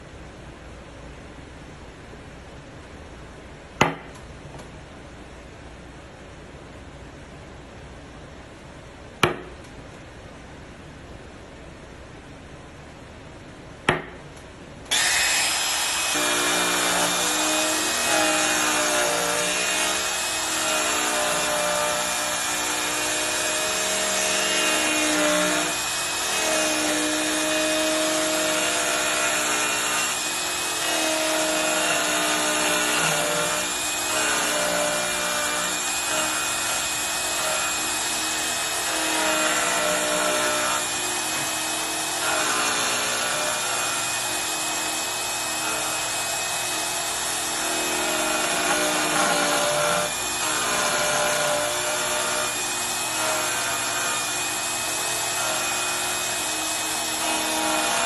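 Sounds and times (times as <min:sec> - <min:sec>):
trim router cutting wood: 0:14.9 - 0:58.0.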